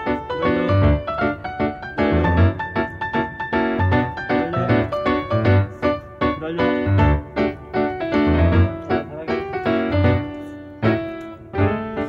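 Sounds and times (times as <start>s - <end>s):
piano tune: 0.0s - 12.0s
bass line: 0.3s - 1.2s, 2.0s - 2.6s, 3.5s - 5.8s, 6.4s - 11.9s.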